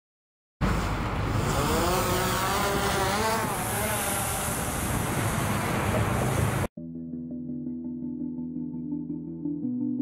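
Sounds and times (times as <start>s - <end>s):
drone propellers whine: 0.7s - 6.7s.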